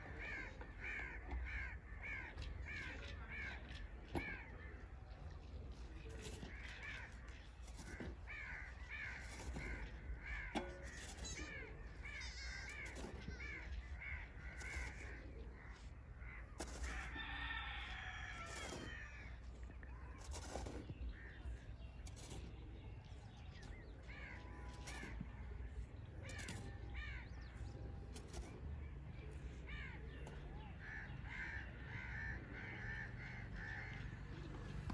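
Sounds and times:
birds calling harshly: 0.0 - 34.9
shovel scraping sandy soil: 6.0 - 26.8, 27.8 - 28.8.

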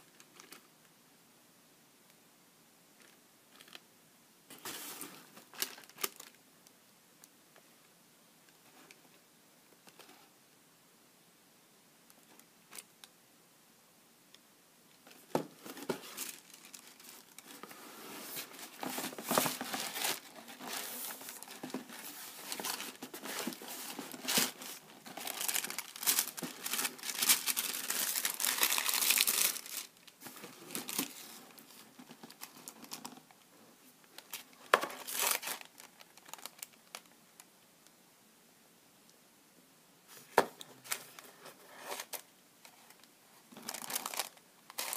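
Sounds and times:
tissue paper crinkling: 4.6 - 6.4, 15.6 - 33.1, 34.1 - 37.1, 43.6 - 44.9.

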